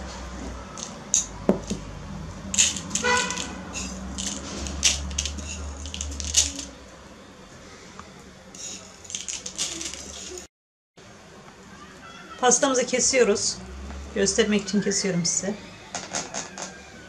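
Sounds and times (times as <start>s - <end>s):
sprinkles tapping and rustling: 2.5s - 6.7s, 8.6s - 10.5s.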